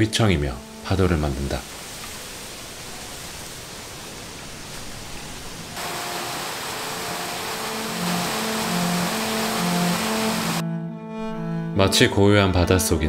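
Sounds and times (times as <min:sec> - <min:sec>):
wind through bamboo leaves: 0:00.7 - 0:10.6
water rushing over rocks: 0:05.7 - 0:10.6
low held string notes: 0:05.8 - 0:13.0.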